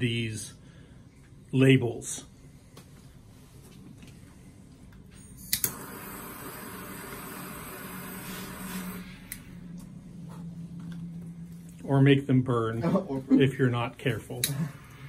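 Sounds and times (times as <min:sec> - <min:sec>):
torch ignition clicks: 0:05.4 - 0:06.0
torch flame hissing: 0:05.6 - 0:09.4.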